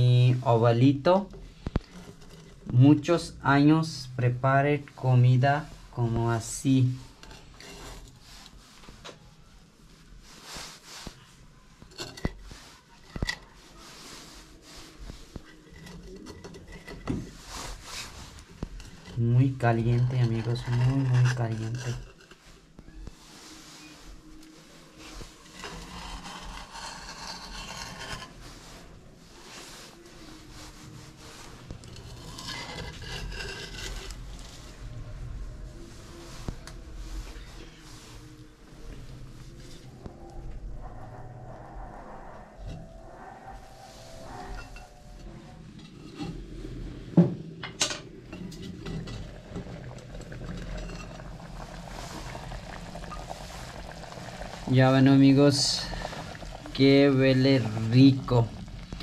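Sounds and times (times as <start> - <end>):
dry rasping scrape on clay pot: 11.9 - 22.6, 25.0 - 28.9, 29.5 - 34.8.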